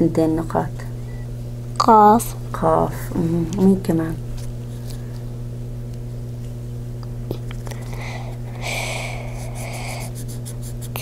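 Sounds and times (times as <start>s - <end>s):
steady low hum: 0.0s - 11.0s
marker scratching on paper: 9.3s - 11.0s.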